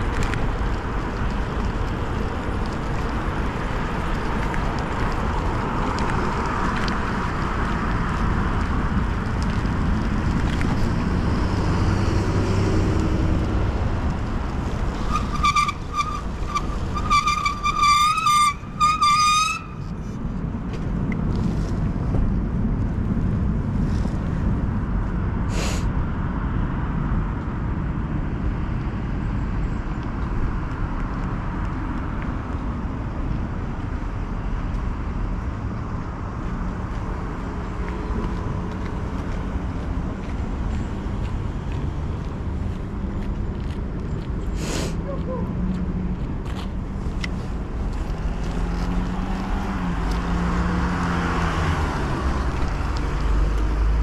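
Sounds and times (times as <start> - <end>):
road traffic noise: 0.0 - 54.0
wind: 0.0 - 54.0.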